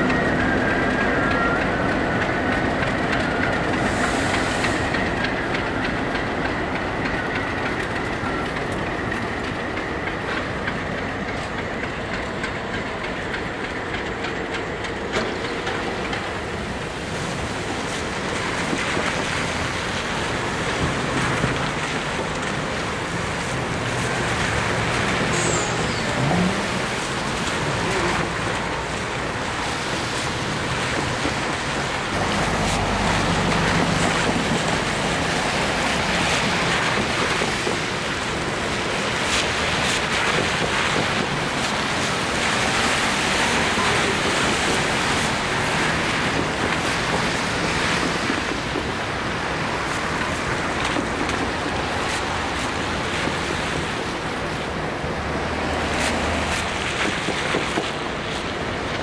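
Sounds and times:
diesel locomotive engine running: 0.0s - 59.0s
rail wheel noise: 0.0s - 59.0s
heavy low rumble: 32.2s - 35.8s.

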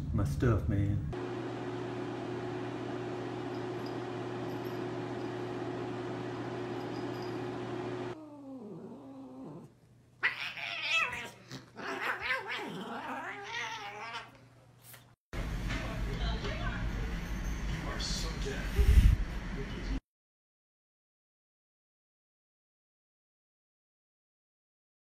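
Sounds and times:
cats yowling and fighting: 8.2s - 14.5s.

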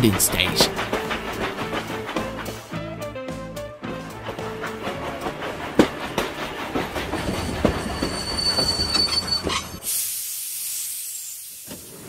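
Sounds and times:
steam hissing: 0.0s - 2.8s, 4.0s - 12.0s
train wheels knocking over rails: 0.0s - 9.9s
high steady squeal: 4.4s - 9.9s.

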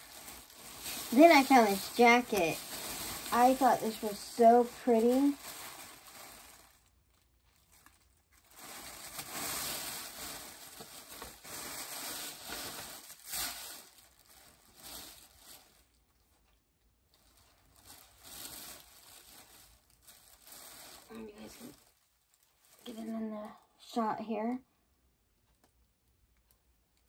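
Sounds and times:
jacket fabric rustling: 0.0s - 6.8s.

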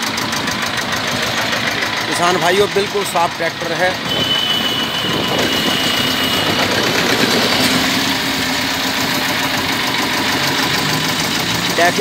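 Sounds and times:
diesel tractor engine idling: 0.0s - 12.0s.

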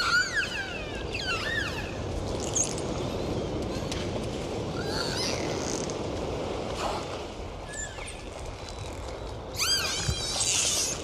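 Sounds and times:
dolphin whistles: 0.0s - 2.0s.

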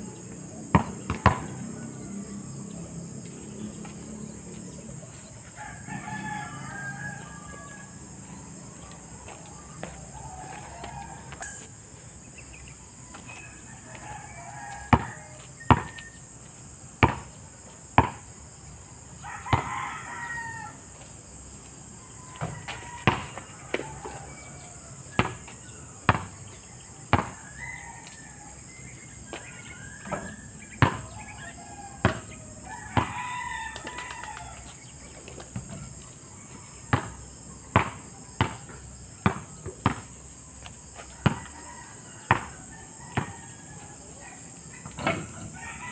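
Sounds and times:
rooster crowing: 0.1s - 3.7s, 4.3s - 12.0s, 13.0s - 16.2s, 19.2s - 21.0s, 21.9s - 26.2s, 26.8s - 35.0s, 40.9s - 45.9s
basketball bouncing on asphalt: 0.6s - 1.9s, 14.6s - 16.2s, 17.0s - 17.4s, 18.0s - 18.3s, 19.5s - 19.9s, 22.4s - 24.2s, 25.2s - 27.6s, 29.3s - 34.5s, 35.5s - 36.0s, 36.7s - 43.5s
steady high-pitched hiss: 1.7s - 45.8s.

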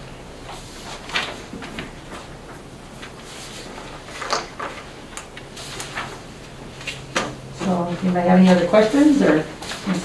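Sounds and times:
paper rustling: 0.4s - 10.0s.

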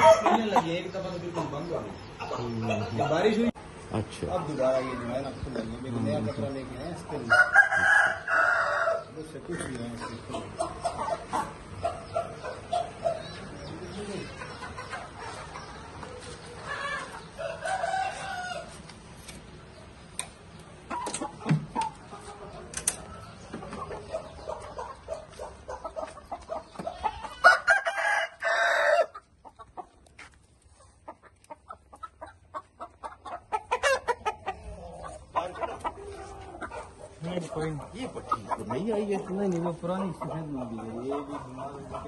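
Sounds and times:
roosters clucking: 0.0s - 42.0s
rooster crow: 7.3s - 9.1s, 16.8s - 18.8s, 27.3s - 29.2s.

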